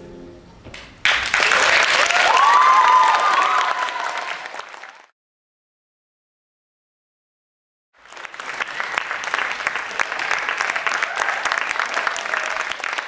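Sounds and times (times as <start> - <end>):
audience applauding: 1.0 - 5.1, 8.0 - 13.0.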